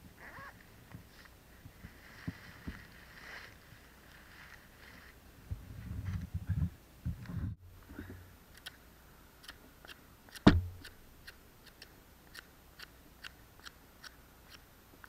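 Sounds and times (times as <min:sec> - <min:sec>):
sharp knock: 0:10.4 - 0:10.9.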